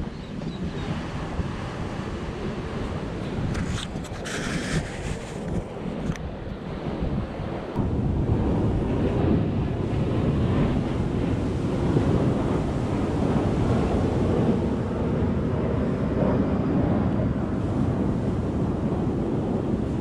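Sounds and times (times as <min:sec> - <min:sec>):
surf on beach: 0:00.0 - 0:05.6, 0:06.6 - 0:20.0
wind rumbling on microphone: 0:00.0 - 0:20.0.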